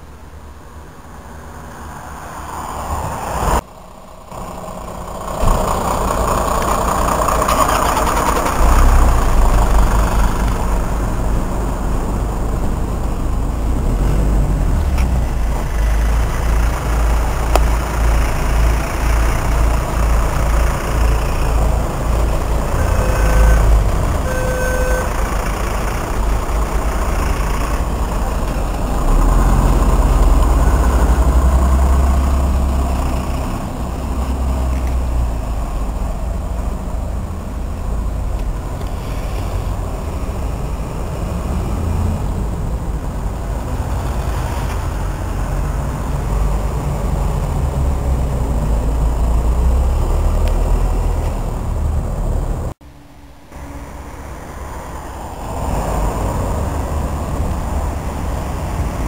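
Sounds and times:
diesel engine rumbling: 0:00.0 - 0:59.0
fire engine driving past: 0:00.0 - 0:59.0
short beeps: 0:22.8 - 0:25.1.

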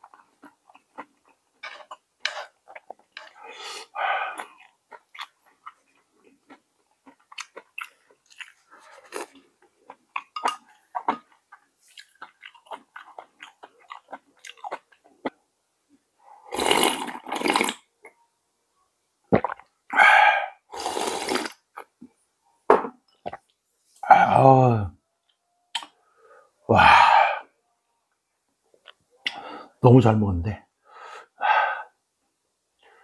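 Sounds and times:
person chewing wetly: 0:00.0 - 0:15.4.

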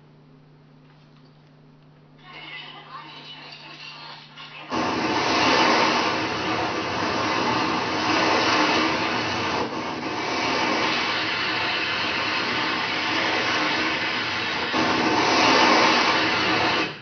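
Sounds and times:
water sprinkler spraying: 0:04.7 - 0:17.0.

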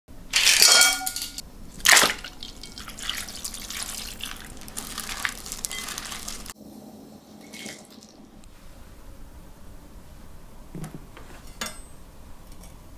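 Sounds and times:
water splashing in glass bowl: 0:00.5 - 0:06.5
sauce pouring in thin stream: 0:01.8 - 0:06.6.

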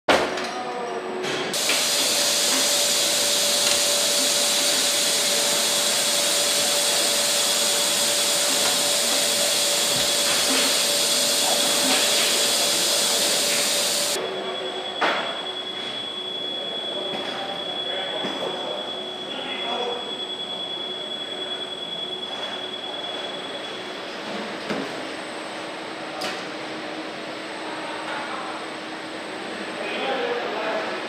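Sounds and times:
machine hum: 0:01.6 - 0:14.2
machinery hissing: 0:01.6 - 0:14.5.

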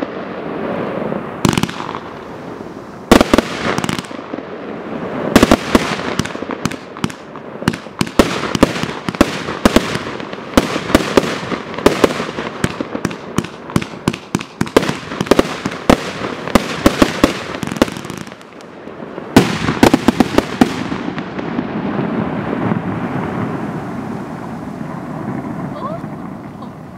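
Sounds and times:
fireworks cake firing shots: 0:01.4 - 0:02.2, 0:03.1 - 0:04.4, 0:05.3 - 0:18.7, 0:19.3 - 0:21.7.

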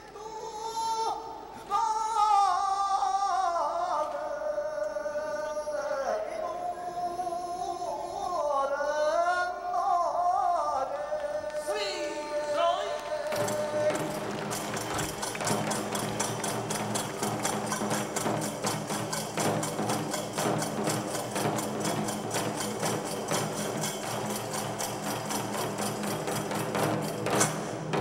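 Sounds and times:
steady held tones: 0:11.5 - 0:28.0
fast percussion beat: 0:11.6 - 0:28.0.

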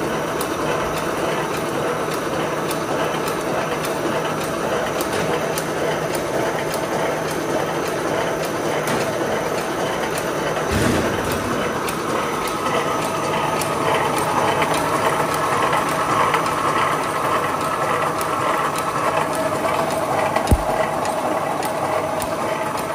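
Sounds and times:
welding machine humming and ticking: 0:00.0 - 0:22.9
low thump: 0:20.5 - 0:20.8.

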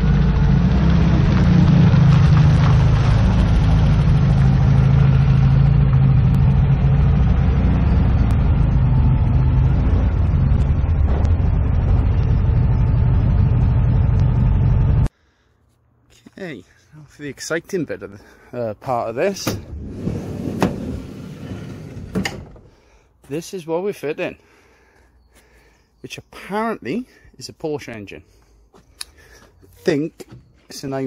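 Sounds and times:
vehicle engine humming: 0:00.0 - 0:15.2.

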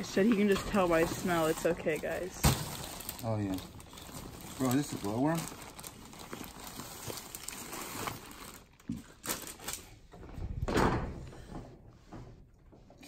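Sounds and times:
plastic bags rustling: 0:00.0 - 0:10.1.

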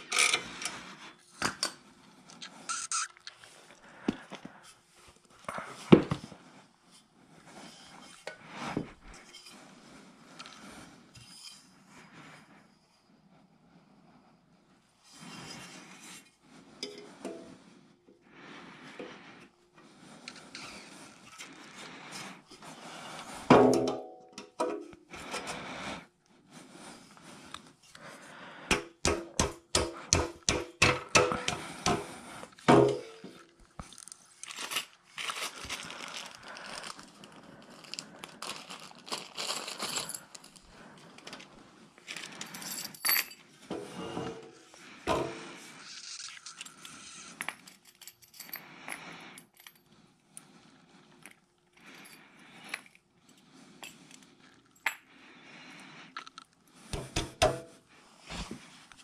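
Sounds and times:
metal parts clinking and knocking: 0:47.3 - 0:49.6.

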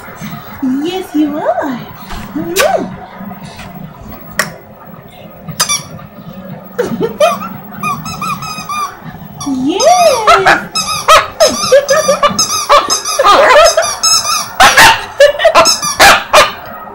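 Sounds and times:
squeaky rubber toy squeaking: 0:05.6 - 0:06.0, 0:07.3 - 0:16.5.

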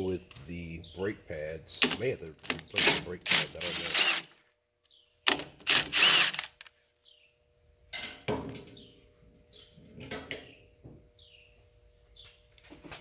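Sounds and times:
impact wrench running: 0:02.4 - 0:04.3, 0:05.4 - 0:06.7.

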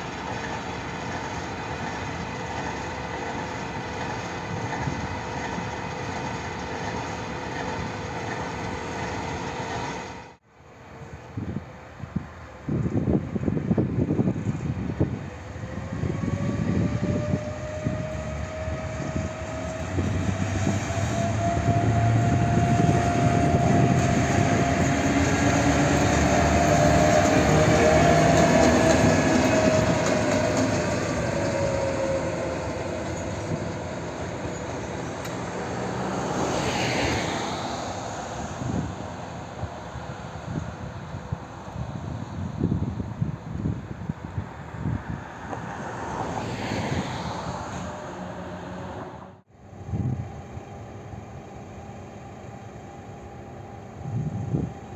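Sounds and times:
diesel locomotive engine: 0:00.0 - 0:54.9
high squeal: 0:16.0 - 0:35.8.

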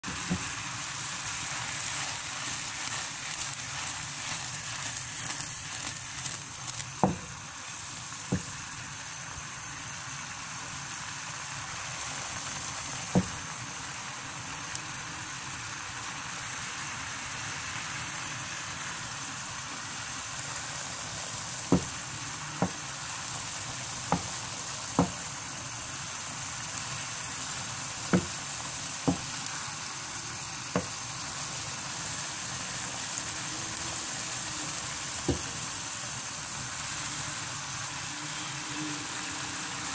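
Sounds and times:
curry sizzling in a pan: 0:00.0 - 0:39.9
sharp pops from pan: 0:28.0 - 0:29.5.

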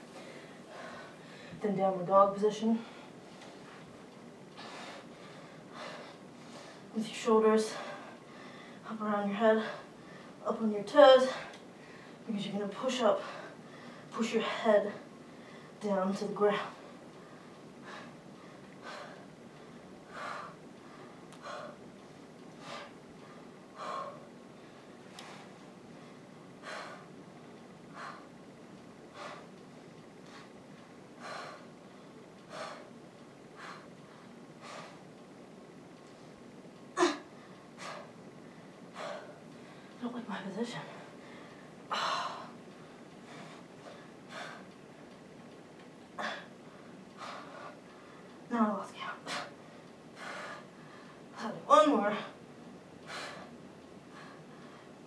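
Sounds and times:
woman breathing hard: 0:00.0 - 0:01.6, 0:04.5 - 0:06.9, 0:07.7 - 0:08.9, 0:13.2 - 0:15.8, 0:16.6 - 0:21.9, 0:22.5 - 0:27.2, 0:27.8 - 0:35.1, 0:37.0 - 0:40.0, 0:40.9 - 0:45.1, 0:46.1 - 0:48.4, 0:49.2 - 0:51.4, 0:53.0 - 0:55.0.

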